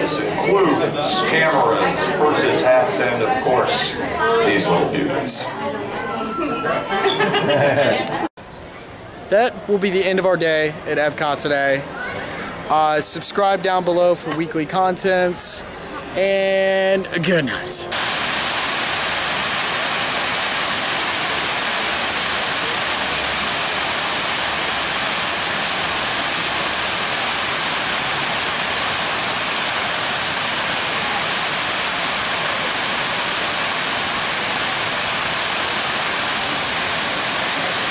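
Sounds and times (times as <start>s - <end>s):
fountain water splashing: 17.9s - 37.9s.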